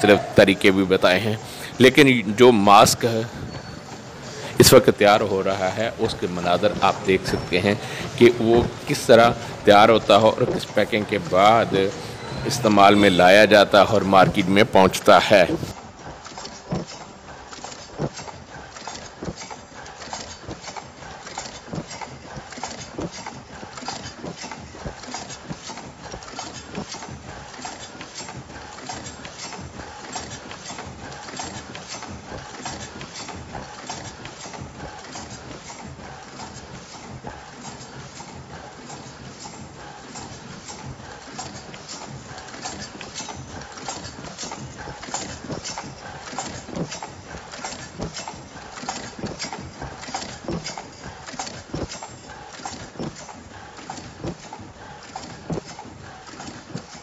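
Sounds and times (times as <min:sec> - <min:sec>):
machine clattering: 0:00.0 - 0:57.0
mechanical clicks and knocks: 0:00.0 - 0:57.0.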